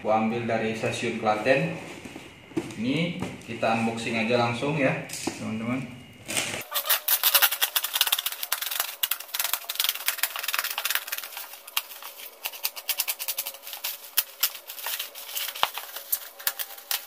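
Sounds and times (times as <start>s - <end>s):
plastic sack being slit and torn: 6.5s - 17.0s.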